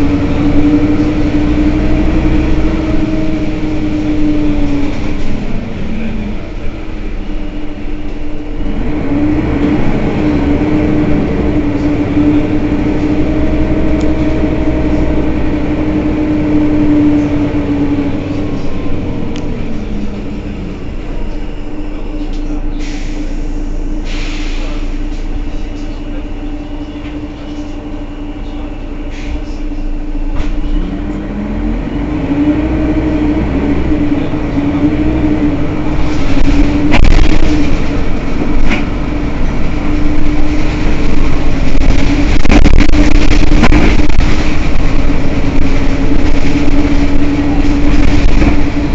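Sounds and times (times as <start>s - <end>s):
bus engine rumble with whine: 0.0s - 48.9s
short air hisses: 22.8s - 24.8s.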